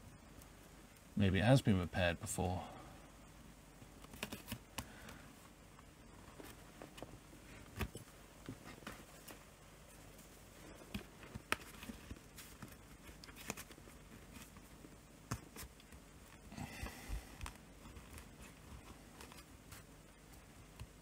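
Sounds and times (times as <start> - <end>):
card scraping plastic: 4.0 - 4.6.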